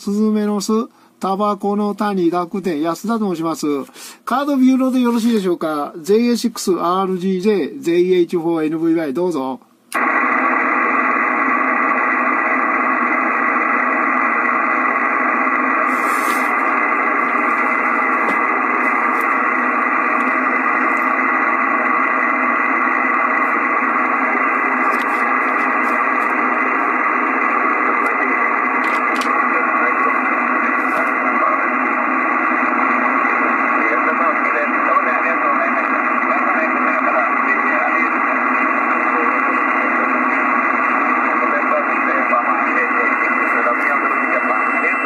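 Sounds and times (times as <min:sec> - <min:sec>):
faint steady tones: 0:09.6 - 0:45.0
shortwave radio static hiss: 0:10.0 - 0:45.0.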